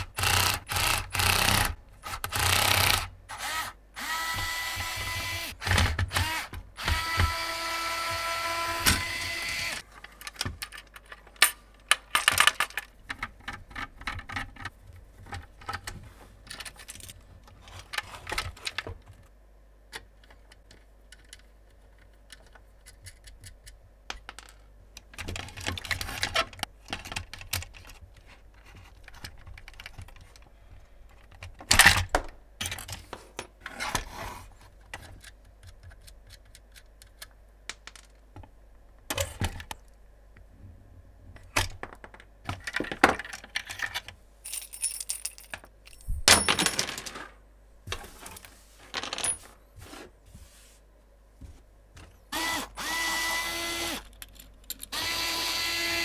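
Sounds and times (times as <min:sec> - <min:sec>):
small parts clicking and rattling: 0:08.9 - 0:18.9, 0:19.9 - 0:33.6, 0:34.8 - 0:38.2, 0:41.7 - 0:47.3, 0:53.9 - 0:55.7.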